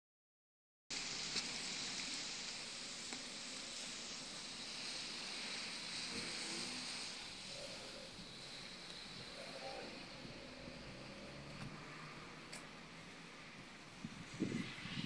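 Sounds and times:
distant traffic on wet road: 0.9 - 15.0.

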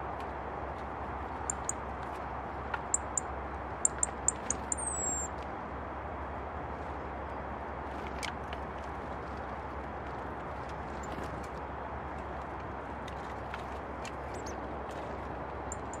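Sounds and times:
small songbird calling: 1.4 - 1.8, 2.8 - 5.3, 14.3 - 14.6, 15.7 - 16.0.

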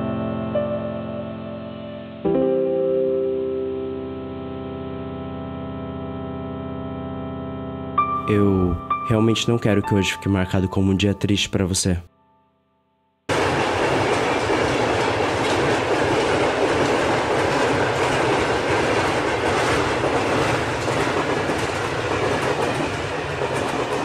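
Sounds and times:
train wheels on rails: 13.3 - 24.0.

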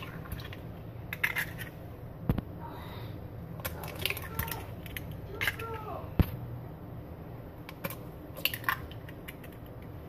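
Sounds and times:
egg cracking on glass bowl: 3.6 - 6.3, 7.7 - 10.0.

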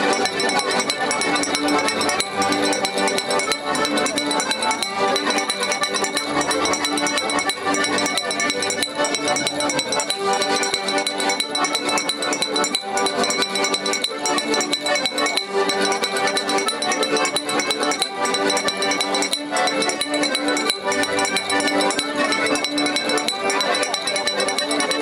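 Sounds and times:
accordions playing chords: 0.0 - 25.0
even beat of clicks: 0.0 - 25.0.

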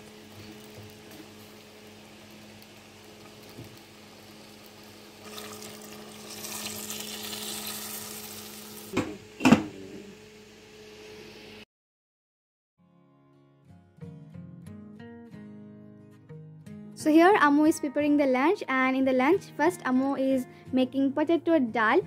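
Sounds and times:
potatoes sizzling in a pot: 0.0 - 11.6.

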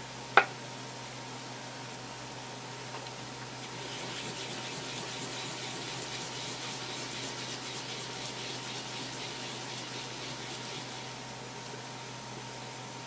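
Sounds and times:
wasabi rasping on grater: 3.6 - 11.3.

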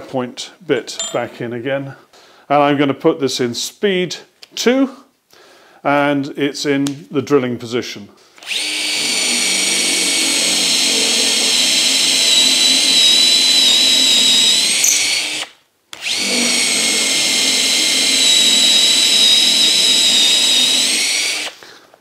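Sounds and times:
drill motor whining: 8.4 - 21.6.

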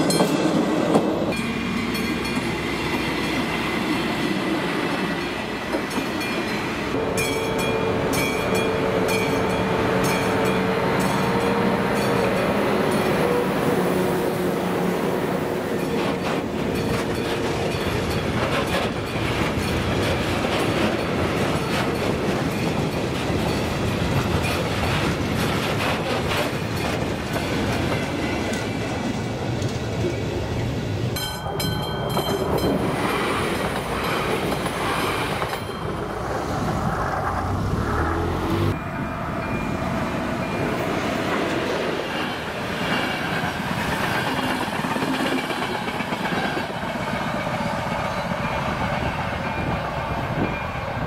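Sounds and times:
diesel locomotive: 0.0 - 51.0
wheels clacking over rail joints: 15.6 - 30.2.

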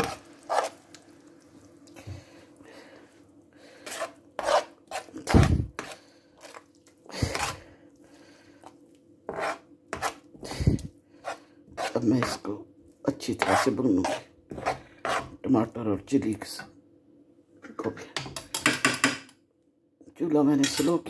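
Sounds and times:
spoon scraping frying pan: 0.0 - 0.9, 3.8 - 7.6, 13.3 - 15.4.

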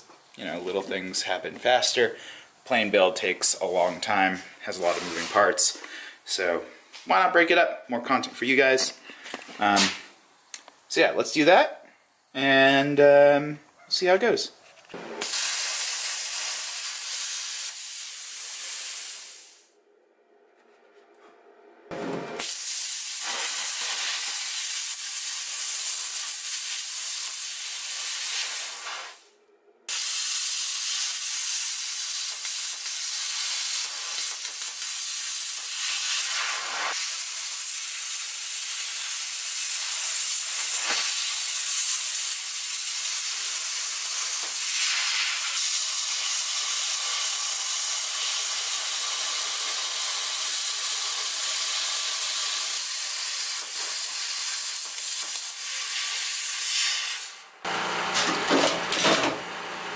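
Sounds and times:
plasma cutter hissing: 4.8 - 5.7, 15.2 - 19.7, 22.4 - 29.2, 29.9 - 57.4.

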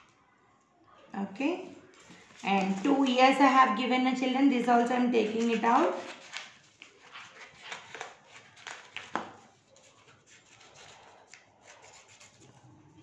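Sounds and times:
faint paper handling: 1.6 - 3.8, 5.1 - 12.7
scissors snipping paper: 5.2 - 12.5.

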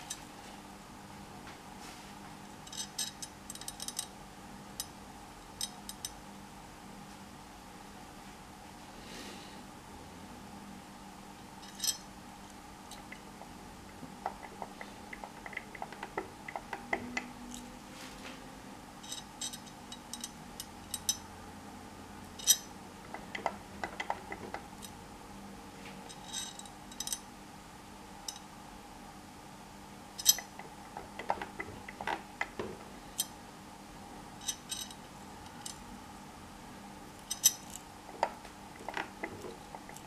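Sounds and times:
faint steady hum: 0.0 - 40.0
small metallic clicks and clinks: 2.6 - 4.1, 5.6 - 6.2, 11.6 - 12.0, 19.0 - 21.3, 22.4 - 22.7, 26.1 - 27.2, 30.2 - 30.6, 34.4 - 35.8, 37.2 - 40.0.

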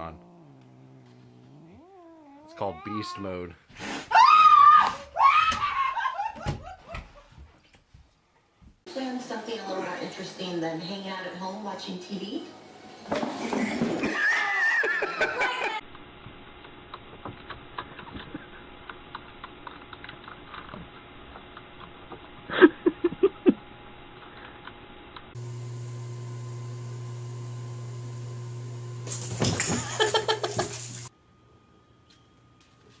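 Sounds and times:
low electrical hum: 0.0 - 3.6.

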